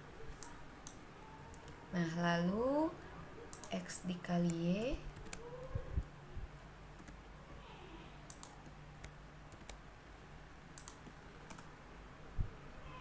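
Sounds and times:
mouse and keyboard clicks: 0:03.5 - 0:03.8, 0:08.3 - 0:09.8, 0:10.8 - 0:11.7.

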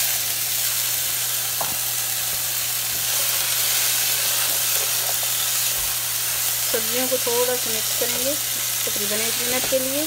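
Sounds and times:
vegetables sizzling in a frying pan: 0:00.0 - 0:10.0
spatula stirring: 0:02.9 - 0:06.0.

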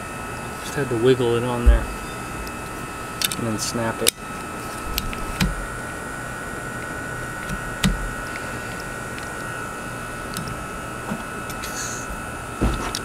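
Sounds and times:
faint constant whine: 0:00.0 - 0:13.0
steady background hum: 0:00.0 - 0:13.0
wiper blade clicks: 0:04.9 - 0:05.7, 0:07.4 - 0:08.4
wiper blade knocking: 0:05.0 - 0:05.6.

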